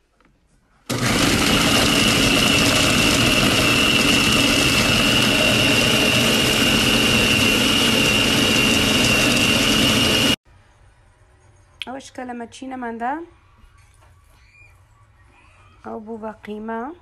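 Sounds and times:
food processor whirring: 0.9s - 10.4s.

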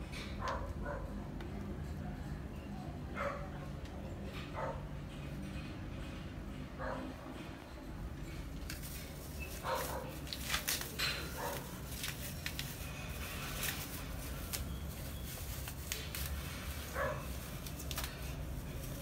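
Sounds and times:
light clicks and scuffs: 8.4s - 19.0s.

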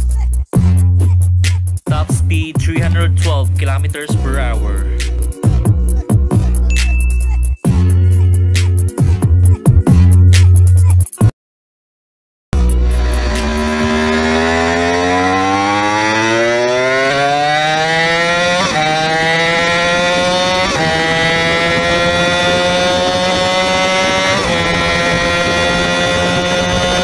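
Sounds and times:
gear upshifts: 12.6s - 27.0s
motorcycle engine accelerating: 12.6s - 27.0s
wind and road rumble: 12.7s - 27.0s.

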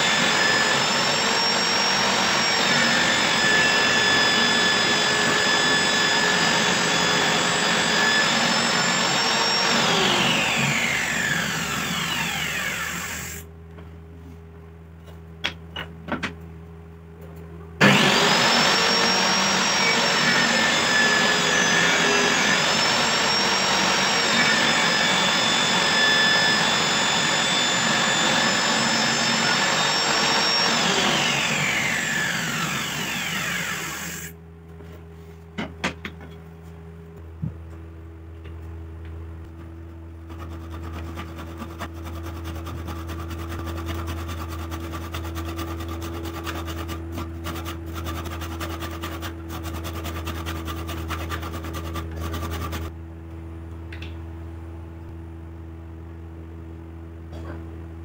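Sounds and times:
table saw whining: 0.0s - 13.5s, 17.8s - 34.4s.

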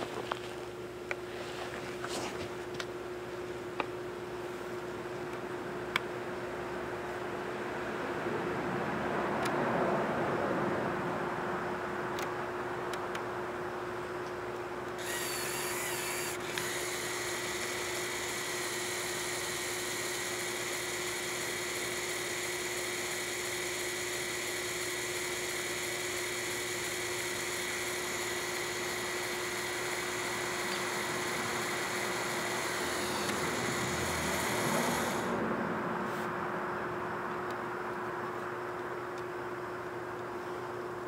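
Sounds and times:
small electric motor whining: 15.0s - 35.4s.

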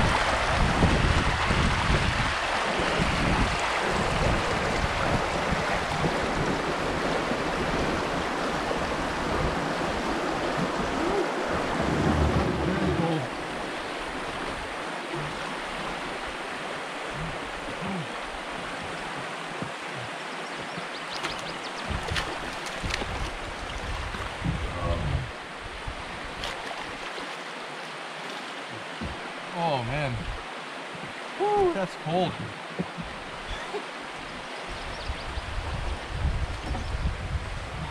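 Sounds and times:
wind buffeting microphone: 0.0s - 15.4s, 21.8s - 26.4s, 34.3s - 37.9s
river rushing: 0.0s - 37.9s.

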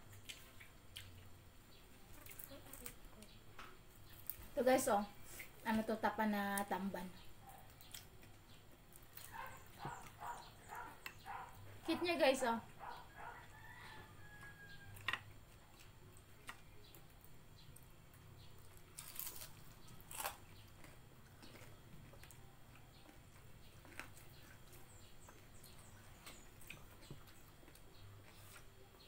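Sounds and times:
quiet chewing: 0.0s - 5.7s, 6.6s - 29.0s.

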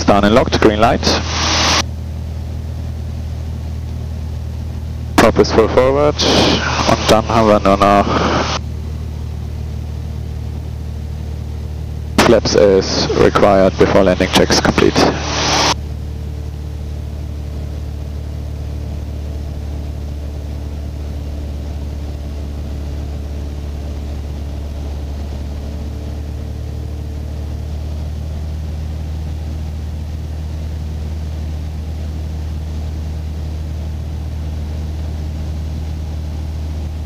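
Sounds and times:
piston engine and propeller droning: 0.0s - 37.0s.

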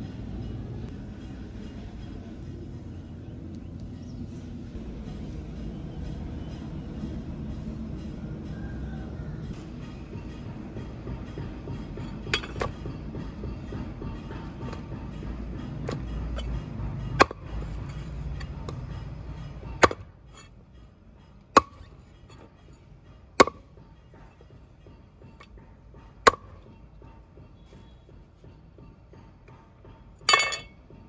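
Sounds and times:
cleaver chopping with metallic ring: 12.0s - 12.9s, 15.8s - 18.9s, 19.6s - 20.6s, 21.4s - 22.6s, 23.4s - 24.4s, 25.4s - 26.7s.

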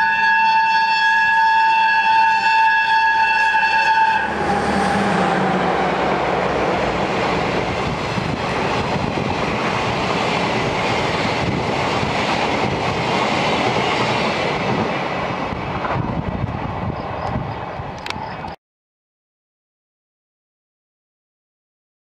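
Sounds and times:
train wheels rumbling on rails: 3.1s - 18.6s.

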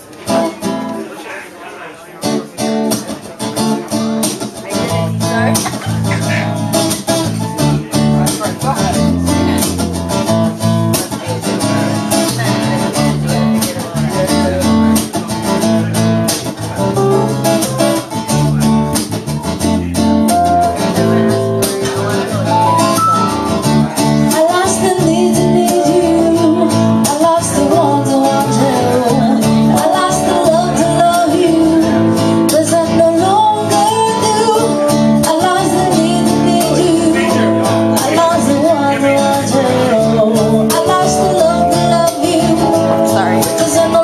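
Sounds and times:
strummed acoustic guitar: 0.0s - 1.2s, 2.2s - 44.0s
person singing: 22.5s - 44.0s.

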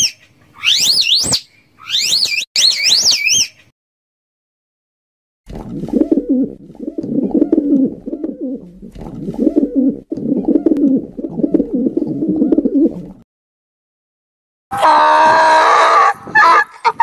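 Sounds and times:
pigeons cooing: 5.7s - 13.2s.

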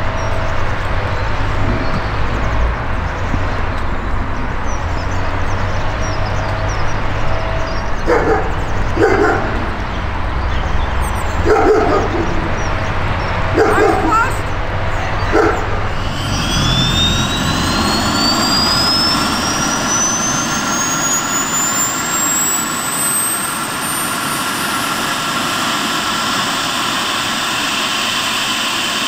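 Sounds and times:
low rumble: 0.0s - 22.0s
dog barking and yipping: 8.0s - 9.9s, 11.1s - 12.8s, 13.5s - 14.4s, 15.2s - 16.0s.

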